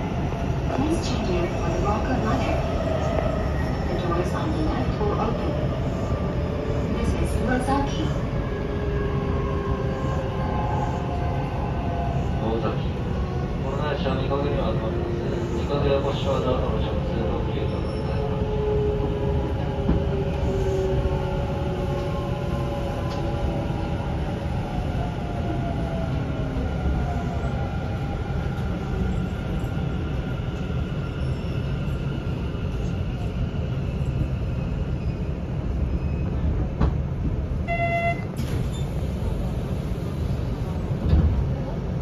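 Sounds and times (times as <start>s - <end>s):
train rail running noise: 0.0s - 42.0s
brief tone: 37.6s - 38.9s.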